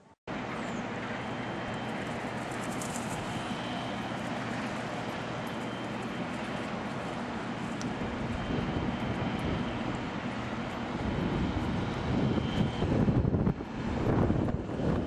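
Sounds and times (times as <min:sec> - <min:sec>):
jet engine rumble: 0:00.3 - 0:15.0
wind buffeting microphone: 0:06.1 - 0:15.0.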